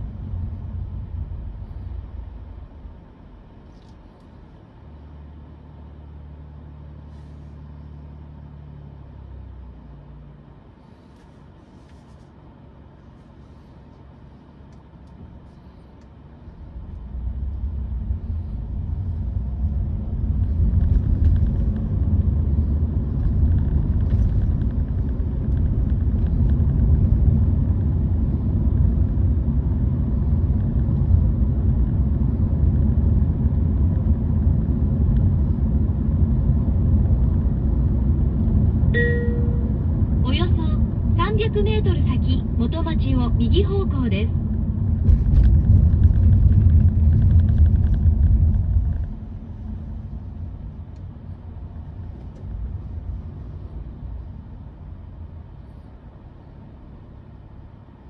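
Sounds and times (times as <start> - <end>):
car road rumble inside cabin: 0.0 - 58.0.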